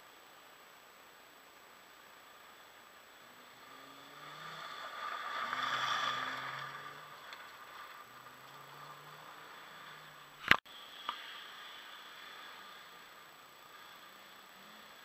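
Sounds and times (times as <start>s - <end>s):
rally car passing on gravel: 3.2s - 14.1s.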